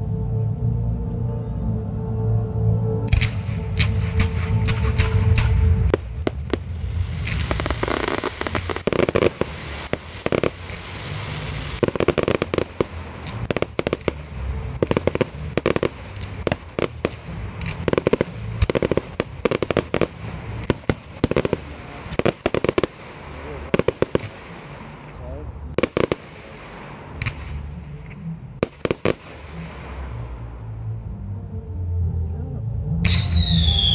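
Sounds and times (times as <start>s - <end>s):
fireworks bangs: 3.1s - 27.7s, 28.6s - 30.5s
steady hiss: 3.1s - 31.5s.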